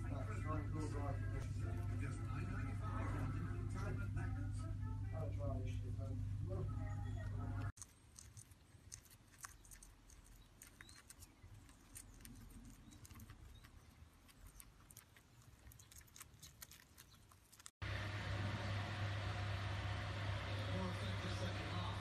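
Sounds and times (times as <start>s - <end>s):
guinea pig chewing hay: 0.0s - 4.7s, 6.5s - 19.0s
low hum with hiss: 0.0s - 22.0s.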